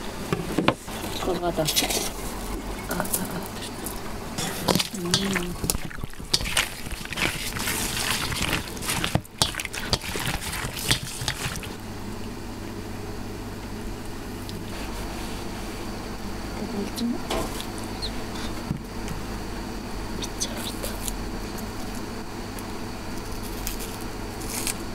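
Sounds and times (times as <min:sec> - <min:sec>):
hands squelching raw meat: 0:03.4 - 0:11.8.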